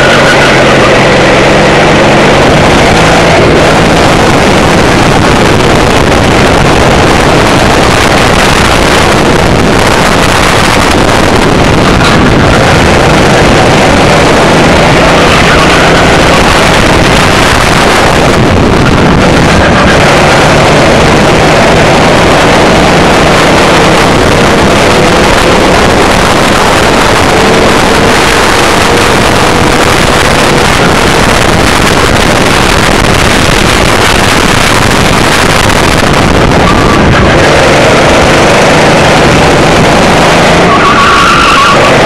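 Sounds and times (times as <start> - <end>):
wind buffeting microphone: 0.0 - 40.7
go-kart engine running hard: 0.0 - 42.0.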